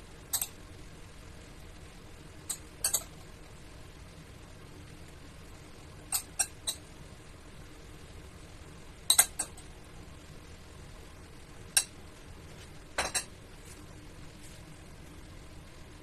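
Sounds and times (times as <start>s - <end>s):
metal spoon clinking glass bowl: 0.4s - 0.6s, 2.5s - 3.1s, 6.1s - 6.8s.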